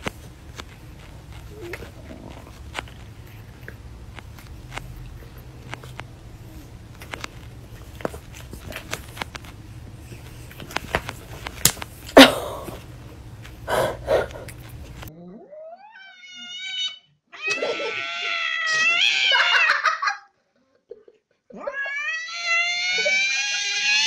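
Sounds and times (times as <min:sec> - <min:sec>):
cat yowling: 0:15.6 - 0:19.9, 0:21.6 - 0:24.0.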